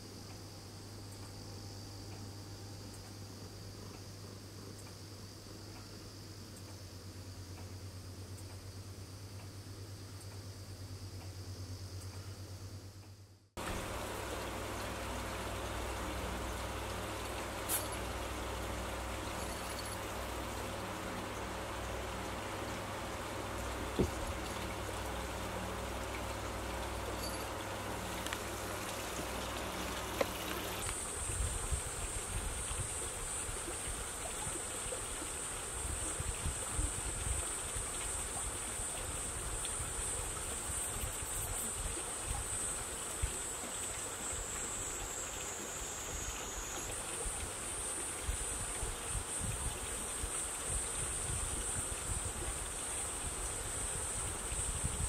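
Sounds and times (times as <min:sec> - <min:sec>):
low hum: 0:00.0 - 0:32.2
background hiss: 0:00.0 - 0:55.0.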